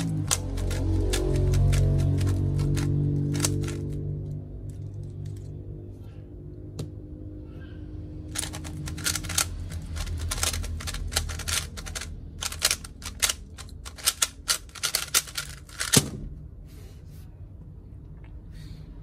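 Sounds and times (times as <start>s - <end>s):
puzzle cube plastic clicking: 0.0s - 4.0s, 8.3s - 16.1s.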